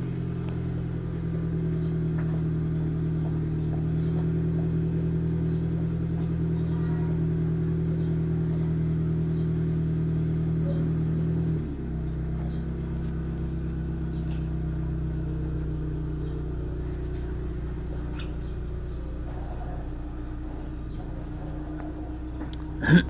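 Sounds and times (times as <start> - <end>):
motor humming: 12.1 - 23.0.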